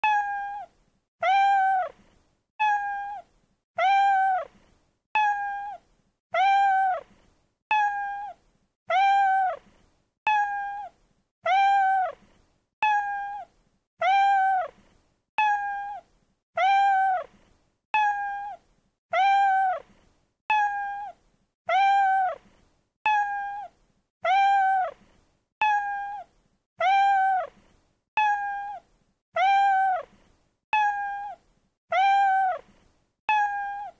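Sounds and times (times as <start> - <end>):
cat meowing: 0.0 - 2.0, 2.6 - 4.5, 5.2 - 7.1, 7.7 - 9.6, 10.3 - 12.2, 12.8 - 14.7, 15.4 - 17.3, 18.0 - 19.9, 20.5 - 22.4, 23.1 - 25.0, 25.6 - 27.6, 28.2 - 30.1, 30.7 - 32.7, 33.3 - 33.9.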